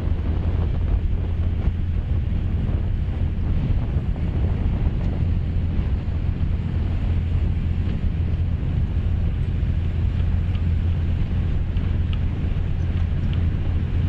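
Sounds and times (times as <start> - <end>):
wind buffeting the microphone: 0.0 - 14.0.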